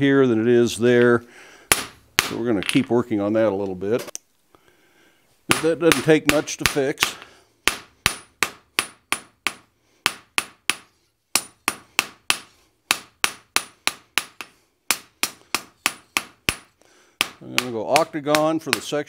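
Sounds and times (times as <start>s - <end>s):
hammer striking metal on anvil: 5.5s - 18.8s.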